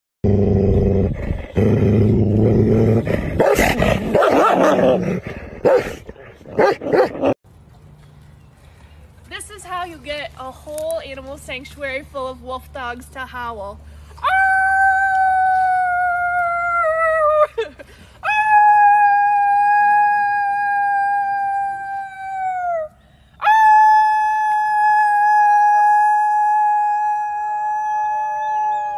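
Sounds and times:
dog growling: 0.4s - 7.4s
dog barking: 3.4s - 4.8s, 5.6s - 6.0s, 6.6s - 7.2s.

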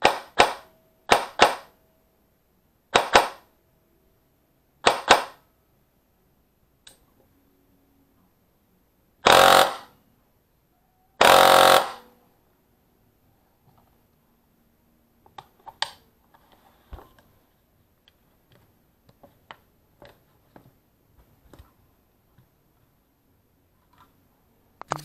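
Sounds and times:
airsoft gun single shots: 0.0s - 1.7s, 3.0s - 3.5s, 4.8s - 5.4s, 11.2s - 12.0s
airsoft gun full-auto bursts: 3.0s - 3.4s, 4.8s - 5.4s, 9.2s - 9.9s, 11.2s - 12.0s.

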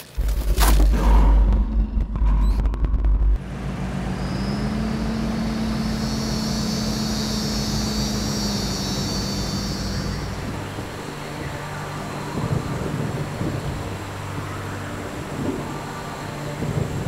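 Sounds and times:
glitchy clicks: 0.0s - 3.4s
constant low hum: 0.0s - 17.0s
dark ambient drone: 0.0s - 17.0s
deep low boom: 0.2s - 3.4s
high hiss: 5.5s - 10.8s.

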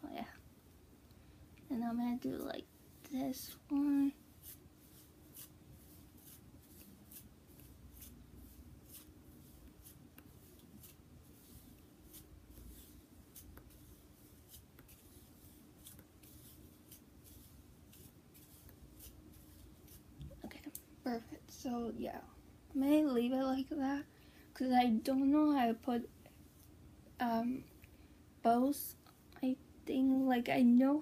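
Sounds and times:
hairbrush strokes through hair: 1.7s - 22.1s, 24.8s - 26.8s.

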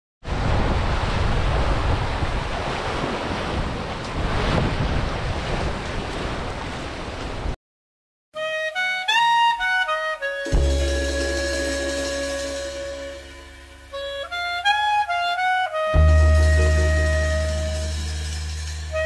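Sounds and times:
wake water rushing and churning: 0.2s - 7.6s
wind buffeting microphone: 0.3s - 7.5s.

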